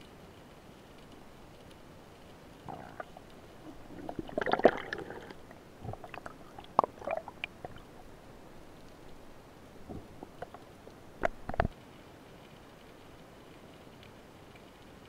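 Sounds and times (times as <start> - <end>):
water gurgling: 2.4 - 11.8
clicks and knocks underwater: 2.6 - 11.8.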